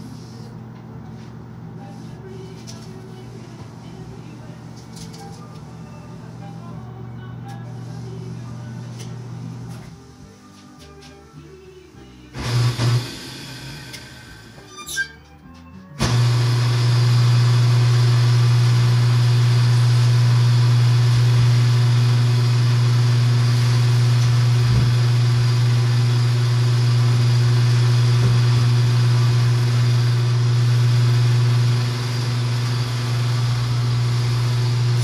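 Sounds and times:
table saw running: 16.0s - 35.0s.

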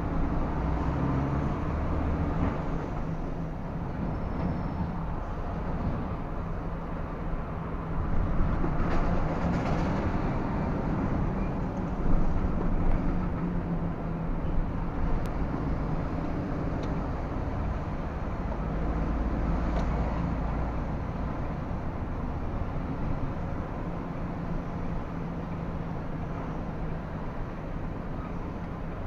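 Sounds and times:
diesel engine droning: 0.0s - 29.0s
road noise: 0.0s - 29.0s.

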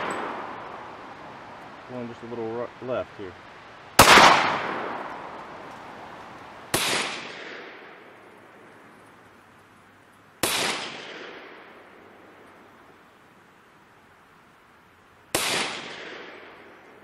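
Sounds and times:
pistol shots with echo: 0.0s - 0.9s, 4.0s - 5.4s, 6.7s - 8.2s, 10.4s - 11.8s, 15.3s - 16.8s.

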